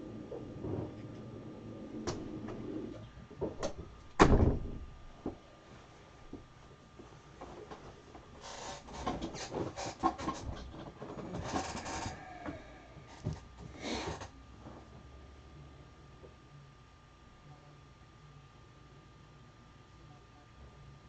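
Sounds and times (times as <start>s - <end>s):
faint steady hum: 0.0s - 21.0s
rustling and scraping: 0.2s - 4.0s, 6.9s - 15.2s.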